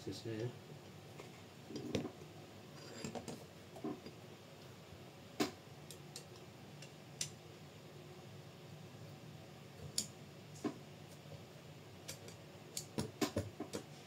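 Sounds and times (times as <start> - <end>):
small parts clicking and tapping: 5.8 - 7.4, 9.8 - 10.1, 12.0 - 13.9.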